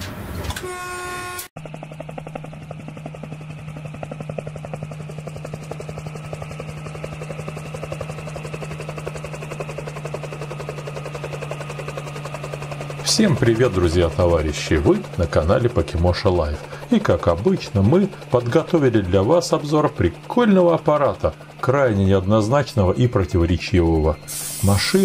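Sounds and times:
horn tone: 0.6s - 1.5s
diesel locomotive engine throbbing: 0.6s - 25.0s.

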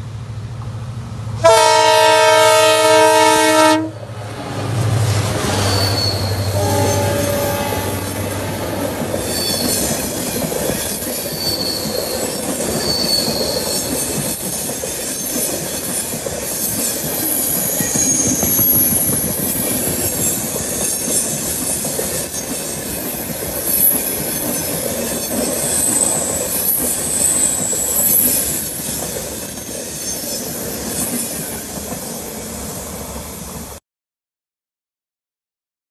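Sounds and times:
train wheels rumbling and clattering: 4.2s - 33.8s
high-pitched wheel-flange squeals: 5.4s - 14.2s, 14.8s - 31.7s.

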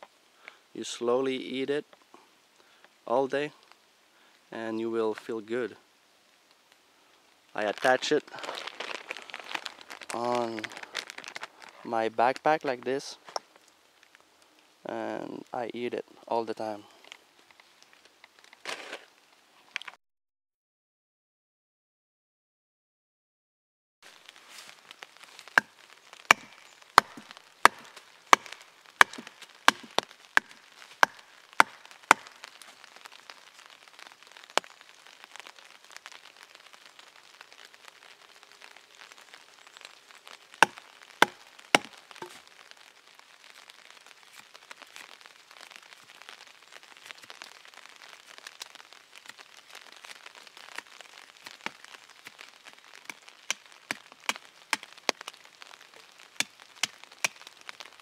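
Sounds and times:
blade shaving wood: 26.3s - 32.3s
knife chopping wood: 26.3s - 32.3s, 40.6s - 42.4s.

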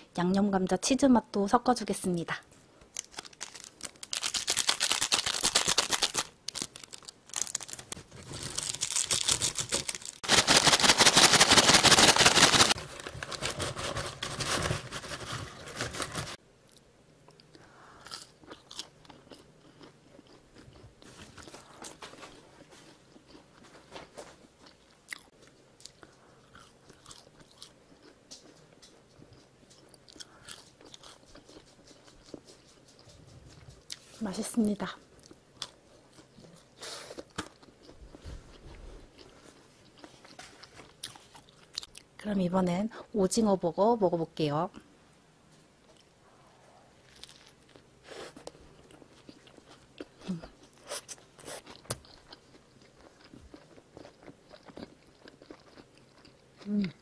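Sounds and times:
crunching and chewing: 2.8s - 34.2s, 35.1s - 42.2s, 47.0s - 57.0s
fries rattling in paper bag: 3.0s - 16.4s.

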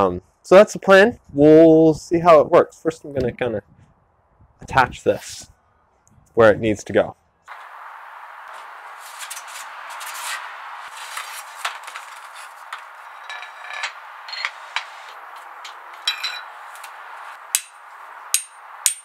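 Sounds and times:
metal clinks and scrapes: 10.9s - 16.9s.

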